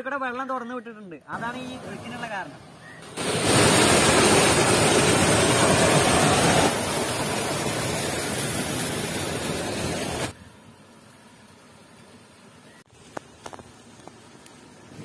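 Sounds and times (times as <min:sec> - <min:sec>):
water pouring and splashing: 0:03.0 - 0:10.4.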